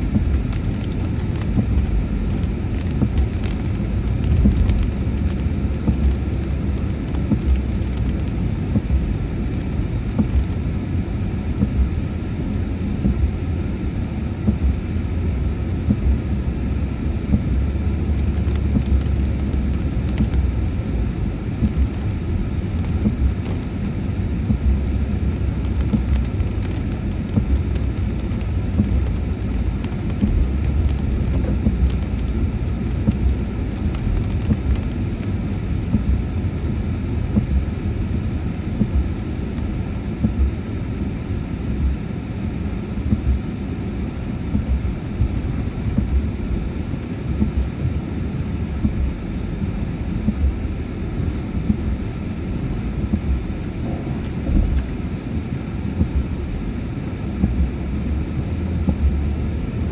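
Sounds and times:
tyres rumbling on wet road: 0.0 - 11.9, 14.4 - 39.6, 57.4 - 59.5
rain hitting car: 0.0 - 59.6.

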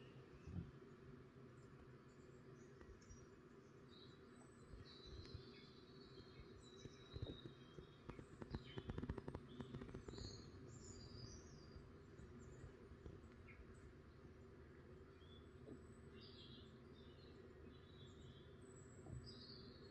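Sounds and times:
faint songbird chirps: 0.0 - 19.9
faint clicks and rustling: 6.2 - 11.1.

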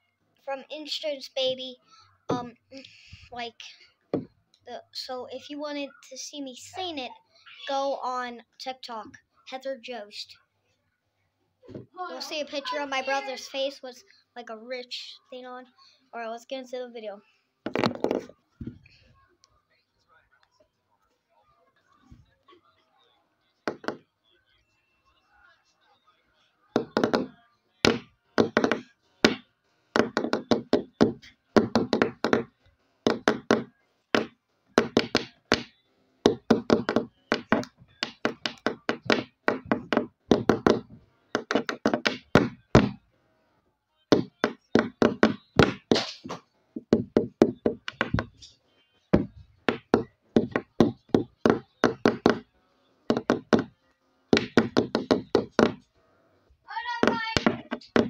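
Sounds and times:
rhythmic knocking and tapping: 4.1 - 4.4, 17.6 - 18.9, 26.8 - 43.1, 44.1 - 56.0, 56.7 - 58.0.

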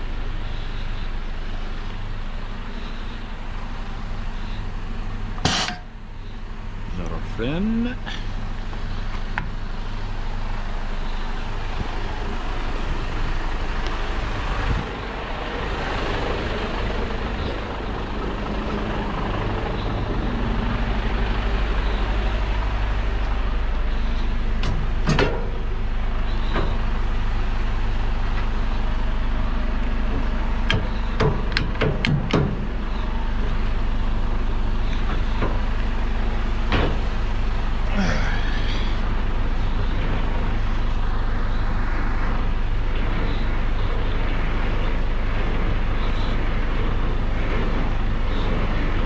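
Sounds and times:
diesel truck engine running: 0.0 - 49.0
sharp knock: 5.4 - 5.9.

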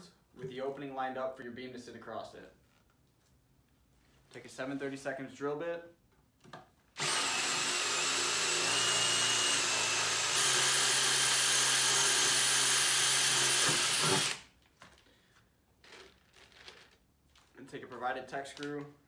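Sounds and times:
cordless drill boring through metal: 7.0 - 14.4.

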